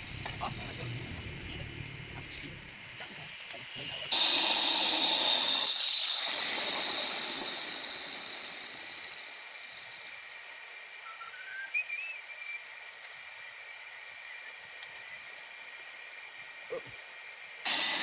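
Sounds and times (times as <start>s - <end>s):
angle grinder spinning down: 4.1s - 9.8s, 17.7s - 18.0s.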